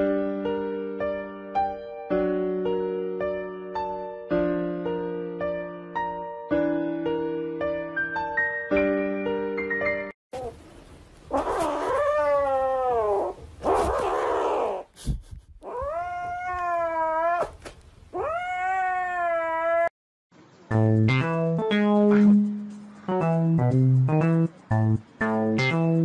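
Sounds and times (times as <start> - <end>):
kitten meowing: 18.2 - 19.9.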